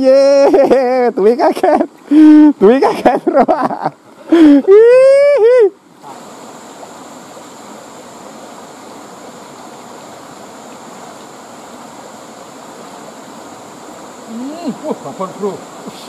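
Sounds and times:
river flowing over rocks: 5.8s - 16.0s
drawn-out voice call: 14.2s - 16.0s.

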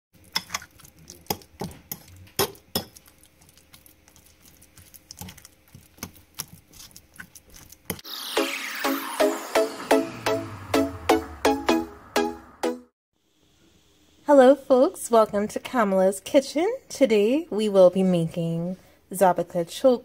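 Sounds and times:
music: 8.0s - 13.0s.

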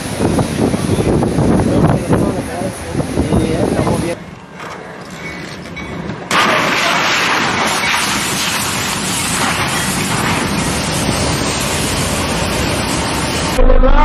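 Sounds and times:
freight train rushing past: 0.0s - 4.3s, 8.0s - 14.0s
train crashing into truck: 5.2s - 11.5s.

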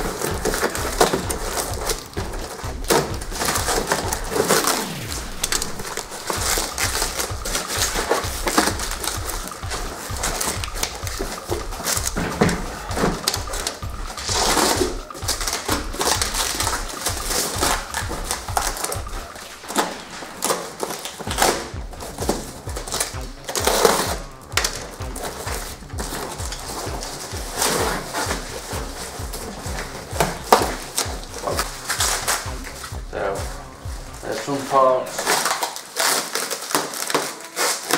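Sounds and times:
background music with bass beat: 0.0s - 35.6s
packaging being torn and crinkled: 34.3s - 37.9s.

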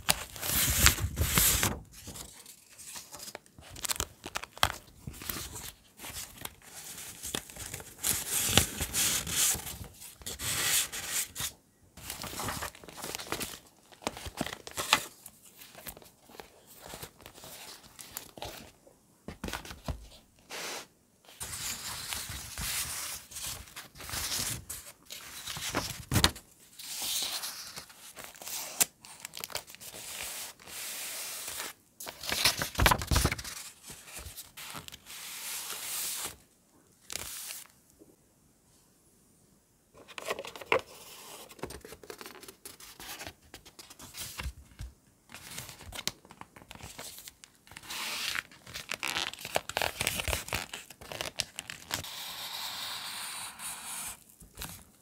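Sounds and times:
paper tearing and rustling: 27.0s - 36.4s.

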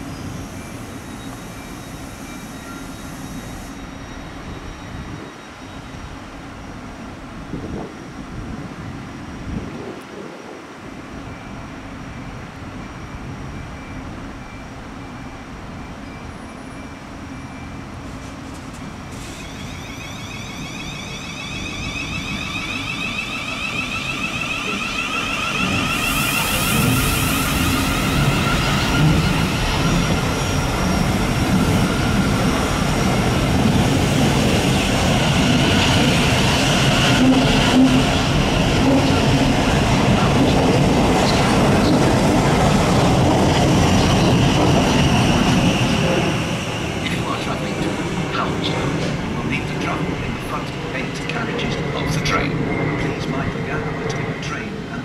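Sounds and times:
train wheels rumbling on rails: 17.9s - 55.0s.

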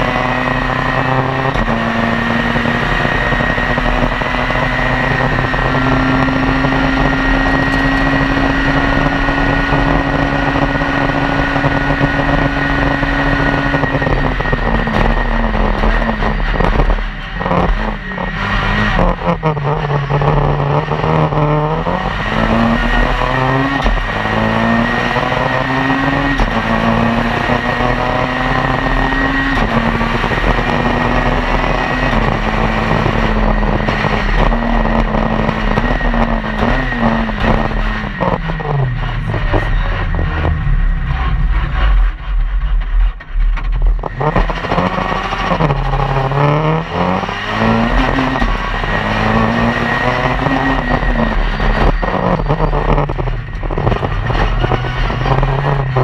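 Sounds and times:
car engine revving: 0.0s - 56.0s
quick gear upshifts: 0.0s - 56.0s.

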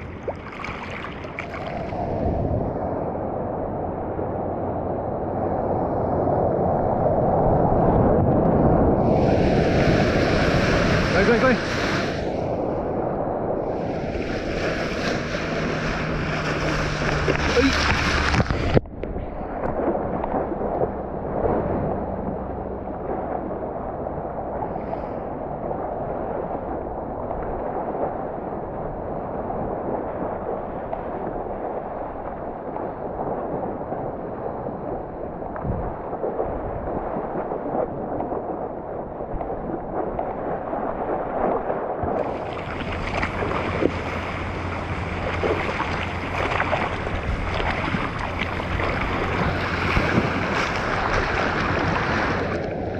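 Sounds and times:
seawater sloshing: 0.0s - 4.1s, 8.8s - 28.7s, 35.7s - 52.9s.

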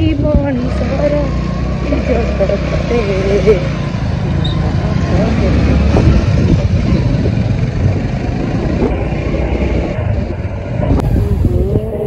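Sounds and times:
wind rumble on microphone: 0.0s - 1.0s, 5.2s - 12.0s
motorcycle road and engine noise: 0.0s - 12.0s.

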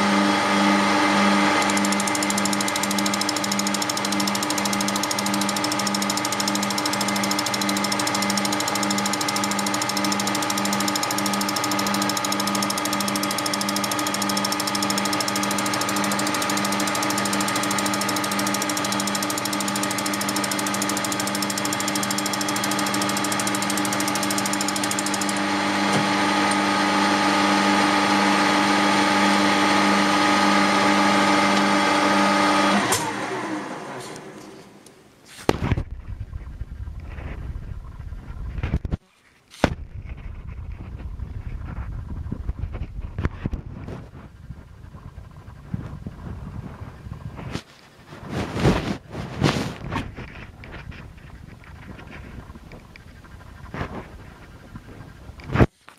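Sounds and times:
lathe motor whine: 0.0s - 34.0s
lathe winding down: 0.0s - 34.0s.

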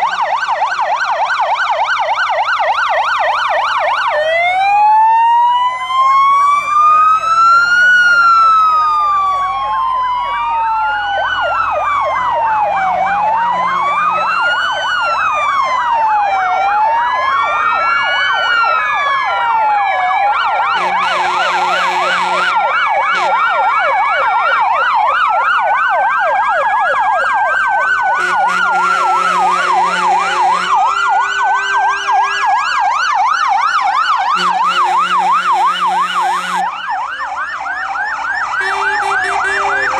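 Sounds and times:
fire engine sirens wailing: 0.0s - 39.9s
low steady horn tones: 13.3s - 14.3s, 20.8s - 23.6s, 28.1s - 32.8s, 34.3s - 36.7s, 38.6s - 39.9s.

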